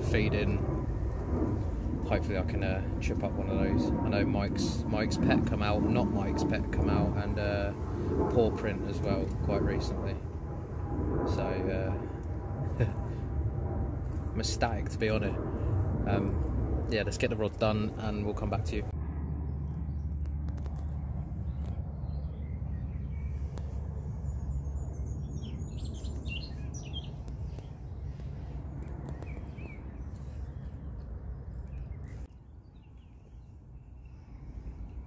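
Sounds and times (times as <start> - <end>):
low outdoor rumble: 0.0 - 35.0
small birds chirping: 19.4 - 35.0.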